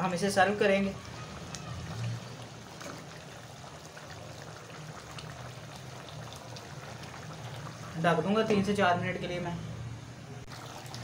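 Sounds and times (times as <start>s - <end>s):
curry bubbling in a pot: 0.0s - 8.9s, 10.4s - 11.0s.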